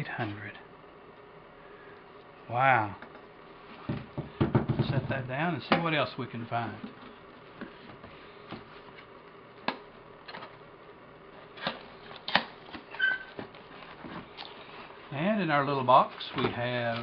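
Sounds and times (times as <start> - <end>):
rustling cardboard and packaging: 11.4 - 17.0
brief squeak: 12.9 - 13.3.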